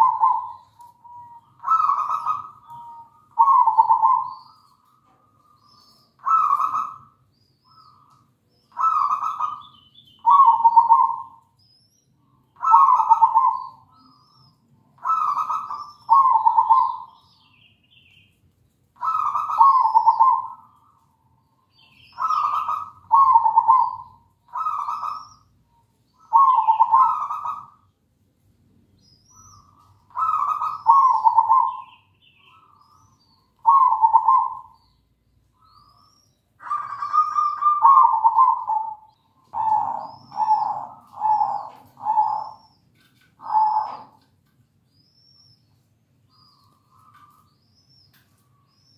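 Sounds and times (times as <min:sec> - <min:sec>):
dove cooing: 0:00.0 - 0:08.1, 0:08.7 - 0:11.4, 0:12.6 - 0:14.4, 0:15.0 - 0:17.2, 0:19.0 - 0:21.0, 0:22.1 - 0:25.5, 0:26.1 - 0:27.8, 0:29.4 - 0:33.0, 0:33.6 - 0:34.9, 0:36.6 - 0:44.3
small birds chirping: 0:00.0 - 0:48.9.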